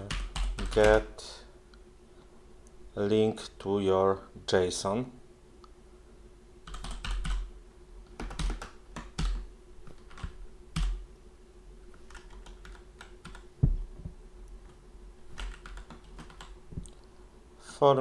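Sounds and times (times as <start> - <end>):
computer keyboard typing: 0.0 - 1.1, 6.6 - 7.5, 8.1 - 11.0, 12.0 - 13.5, 15.3 - 16.6.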